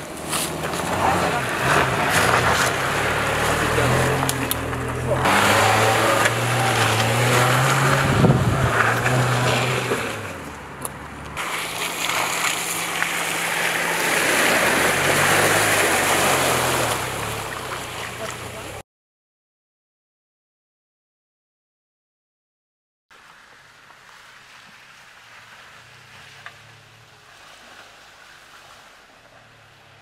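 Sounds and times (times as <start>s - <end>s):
car engine running at low revs: 0.0s - 18.8s
tyre and body noise on rough ground: 0.0s - 18.8s
tyres churning through mud and water: 0.0s - 18.8s, 23.1s - 30.0s.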